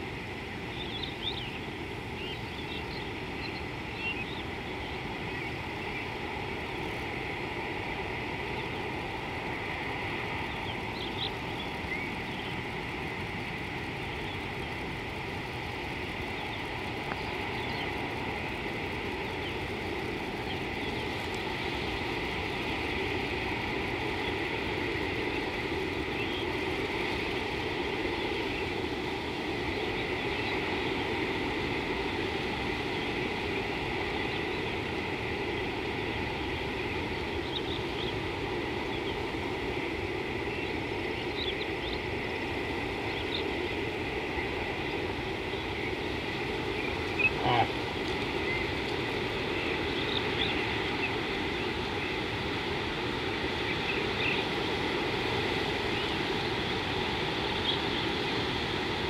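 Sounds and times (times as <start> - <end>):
faint bird chirps: 0.7 - 6.2, 44.8 - 52.2.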